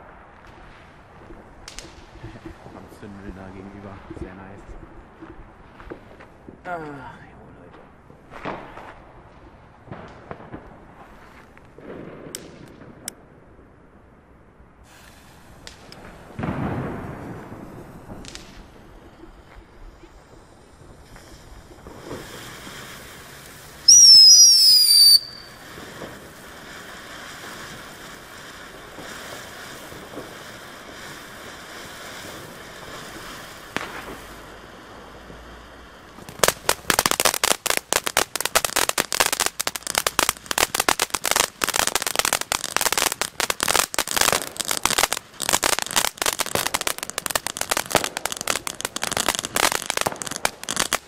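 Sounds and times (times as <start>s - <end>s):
fireworks fountain hissing: 0.0s - 7.2s, 14.8s - 51.0s
firecracker cracks: 8.3s - 13.2s, 14.8s - 51.0s
dull firework boom: 15.6s - 22.9s
high firework whistle: 23.8s - 26.1s.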